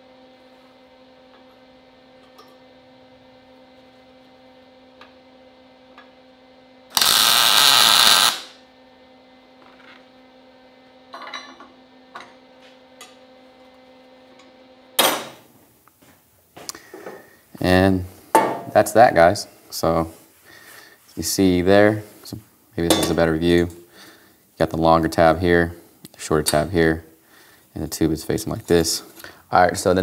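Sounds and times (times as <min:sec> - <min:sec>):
electrical hum: 0:00.0 - 0:30.0
welder hissing crackle: 0:06.9 - 0:08.6.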